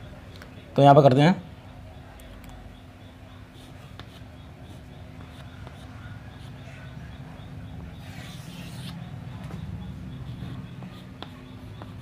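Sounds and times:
steady low hum: 0:01.4 - 0:12.0
chalk tapping and scraping: 0:03.5 - 0:06.7, 0:08.0 - 0:12.0.

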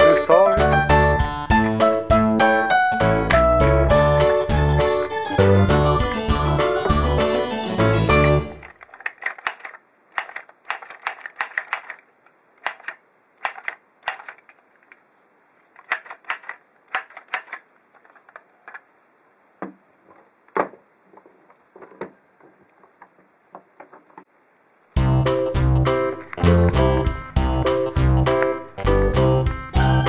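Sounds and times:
plastic toy clicks and snaps: 0:03.3 - 0:03.5, 0:08.6 - 0:15.0, 0:15.8 - 0:18.8.

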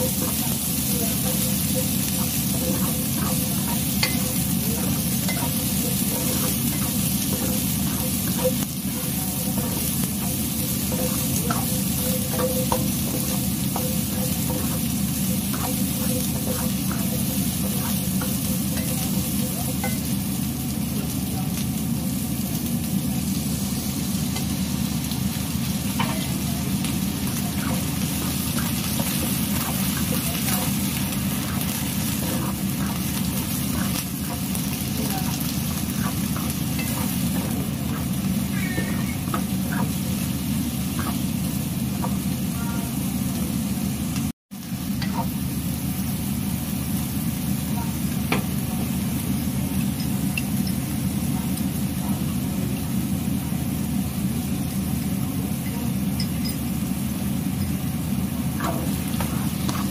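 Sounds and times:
spatula scraping a pan: 0:00.0 - 0:20.0, 0:27.2 - 0:40.0
vegetables sizzling in oil: 0:00.0 - 0:59.9.

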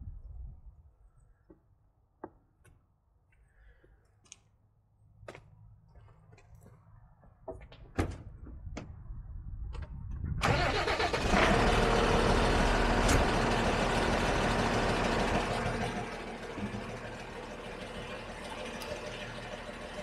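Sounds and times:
diesel truck engine starting and idling: 0:10.4 - 0:20.0.

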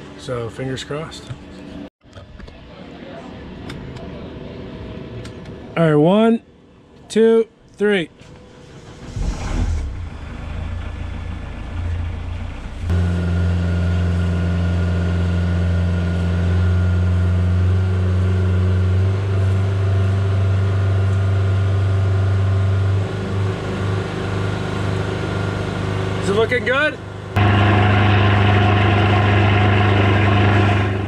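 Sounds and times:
diesel engine starting and revving: 0:08.2 - 0:31.0.

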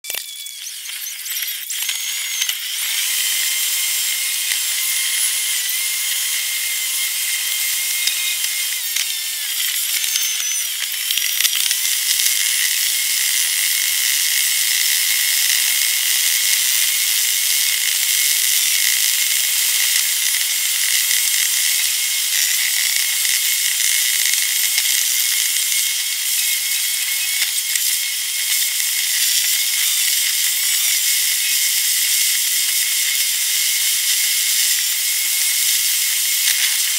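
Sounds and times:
wavering whistles: 0:00.0 - 0:19.8
high-pitched hiss: 0:00.0 - 0:36.9.

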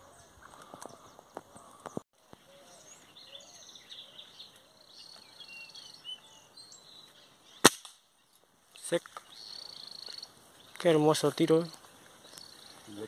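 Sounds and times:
birds chirping and trilling: 0:00.0 - 0:13.0
air rifle shot: 0:07.6 - 0:08.0.

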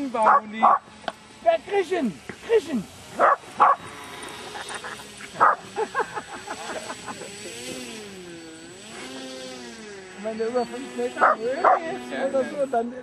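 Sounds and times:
dogs barking and yelping: 0:00.2 - 0:00.9, 0:03.2 - 0:06.4, 0:11.2 - 0:12.0
dog whining: 0:11.2 - 0:11.9.

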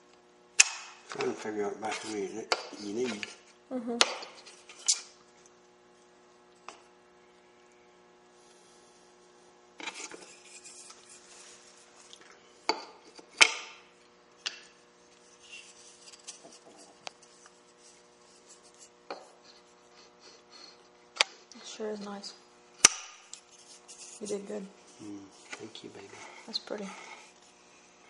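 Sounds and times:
rubbing and scraping: 0:01.3 - 0:03.5, 0:09.8 - 0:12.1, 0:14.5 - 0:20.8, 0:23.2 - 0:27.9.

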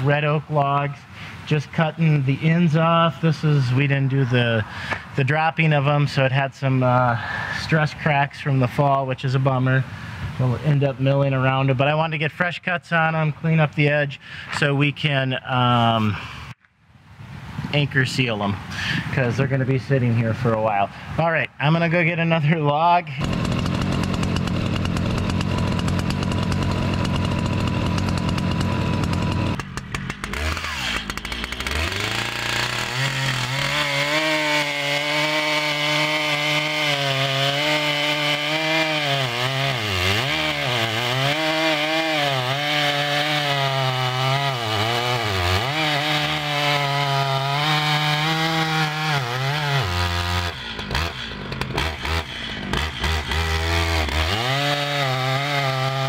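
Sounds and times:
chainsaw cutting log: 0:23.1 - 0:56.0.

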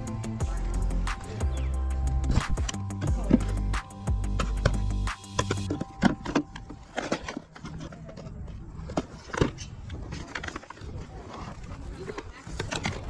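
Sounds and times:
plastic cases clacking: 0:05.4 - 0:11.0.

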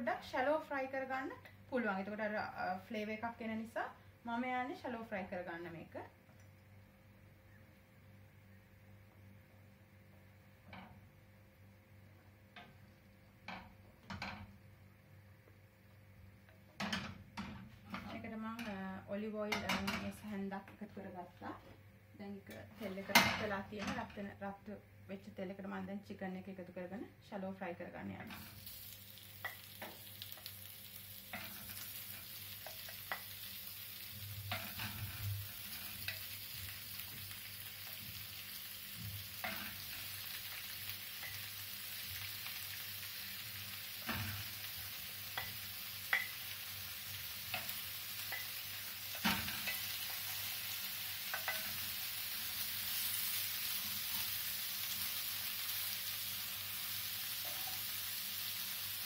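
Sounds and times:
chicken sizzling in hot oil: 0:28.3 - 0:59.0.

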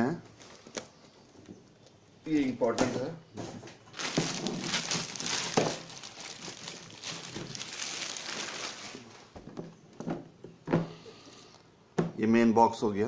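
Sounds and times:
plastic film crinkling: 0:03.9 - 0:09.3.

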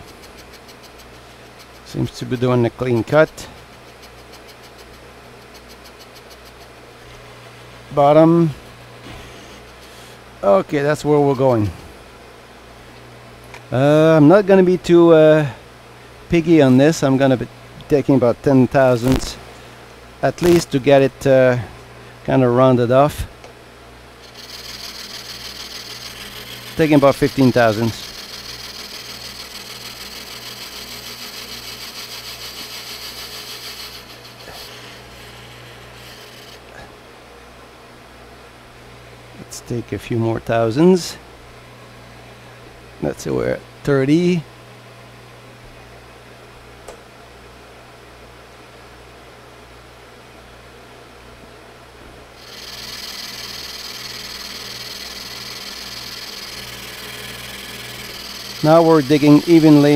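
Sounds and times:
lathe motor hum: 0:00.0 - 0:10.3, 0:24.2 - 0:36.8, 0:52.4 - 0:59.9
metal cutting scraping hiss: 0:24.2 - 0:36.8, 0:52.4 - 0:59.9.

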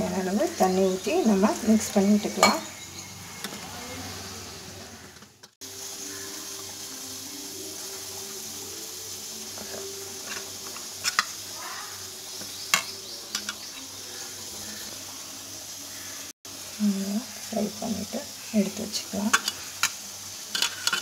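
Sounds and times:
steady hiss: 0:00.0 - 0:21.0
spoon clinking on bowl: 0:02.4 - 0:02.8.

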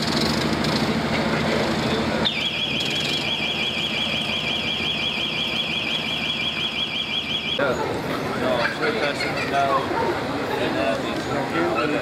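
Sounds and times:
engine idling: 0:00.0 - 0:08.1
street noise: 0:00.0 - 0:12.0
warbling electronic alarm: 0:02.3 - 0:07.6.

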